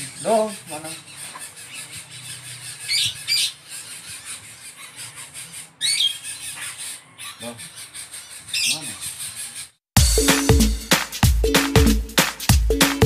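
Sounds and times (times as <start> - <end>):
chicks begging squawks: 0.0 - 9.8.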